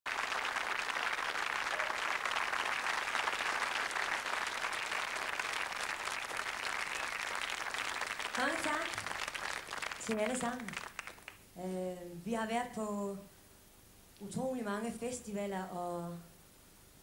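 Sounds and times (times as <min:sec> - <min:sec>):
audience applauding: 0:00.1 - 0:11.4.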